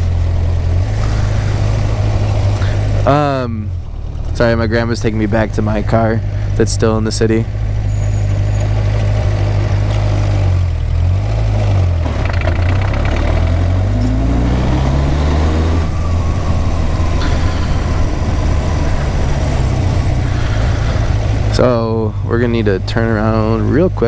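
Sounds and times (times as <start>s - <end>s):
motorcycle engine accelerating: 7.5s - 24.0s.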